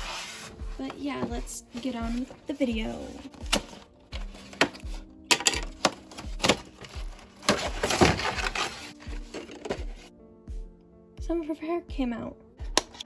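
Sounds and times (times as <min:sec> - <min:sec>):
soft instrumental music: 0:00.0 - 0:13.0
cardboard box being torn open: 0:07.4 - 0:08.9.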